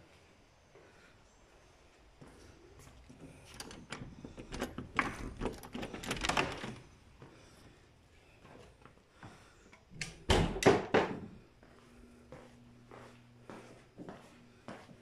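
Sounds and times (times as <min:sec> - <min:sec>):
wooden door clicks and knocks: 0:03.6 - 0:06.8, 0:10.3 - 0:11.3
door thump and rattle: 0:10.2 - 0:11.3.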